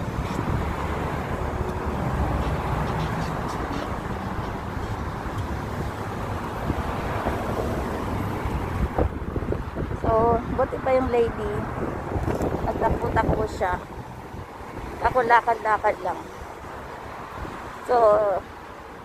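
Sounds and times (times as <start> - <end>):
traffic rumble of passing cars: 0.0 - 19.0.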